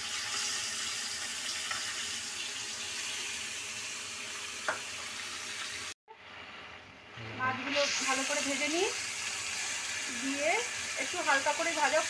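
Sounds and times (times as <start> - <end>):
fish frying in hot oil: 0.0 - 12.0.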